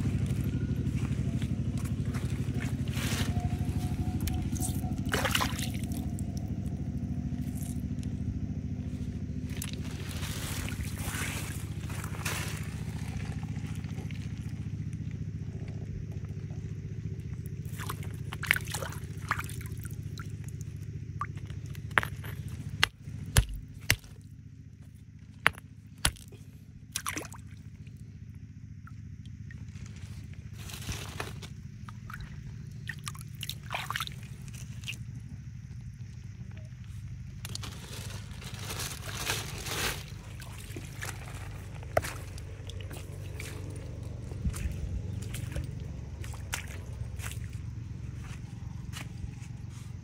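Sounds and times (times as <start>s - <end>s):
low mechanical hum: 0.0s - 50.0s
stones clicking and scraping: 21.3s - 24.2s, 25.4s - 26.3s.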